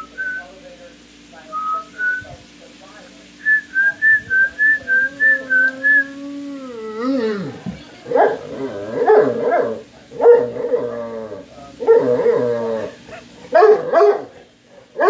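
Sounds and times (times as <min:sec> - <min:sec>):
dog whining and howling: 0:04.8 - 0:07.5, 0:08.2 - 0:14.3.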